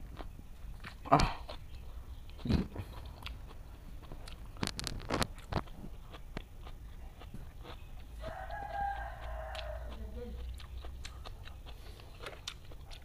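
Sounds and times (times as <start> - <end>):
rooster crowing: 8.2 - 10.4.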